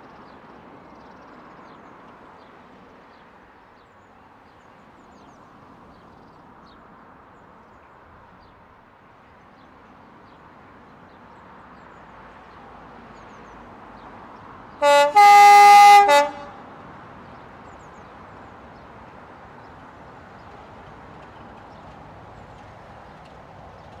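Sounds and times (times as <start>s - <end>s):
diesel locomotive rumble: 14.8s - 24.0s.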